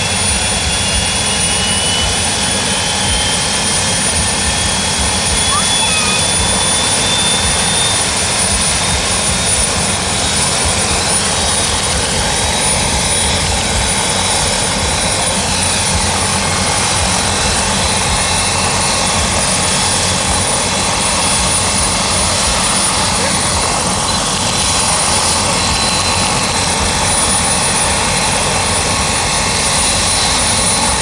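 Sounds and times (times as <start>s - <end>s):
helicopter rotor and engine: 0.0s - 31.0s
high turbine whine: 0.0s - 31.0s.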